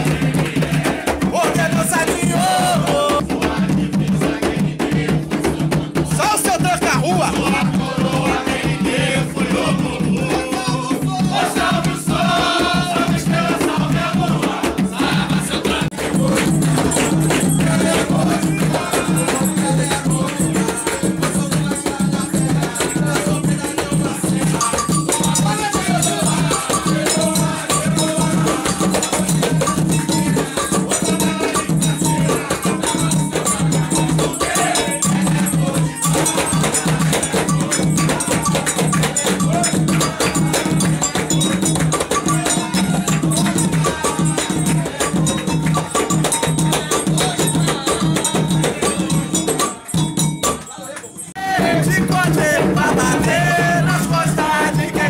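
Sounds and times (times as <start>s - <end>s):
hand drums beating: 0.0s - 55.0s
rattling percussion: 0.0s - 55.0s
voices singing: 0.0s - 55.0s.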